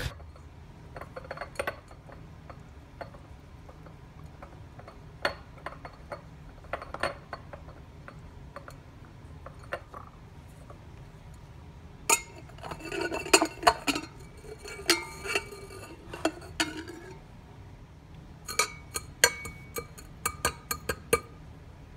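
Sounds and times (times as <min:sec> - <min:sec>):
steady low hum: 0:00.0 - 0:21.9
glass and plate clinking: 0:12.1 - 0:17.2, 0:18.5 - 0:21.4.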